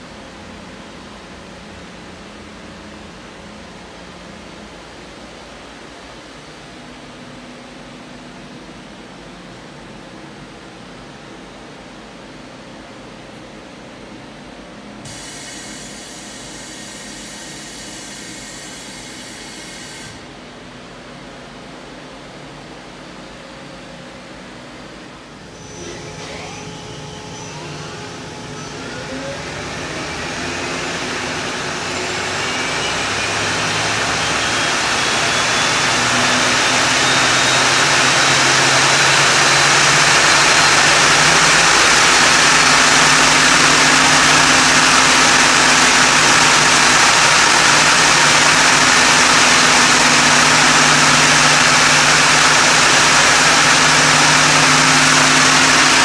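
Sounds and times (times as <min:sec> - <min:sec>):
lathe spindle whine: 0:25.4 - 0:56.0.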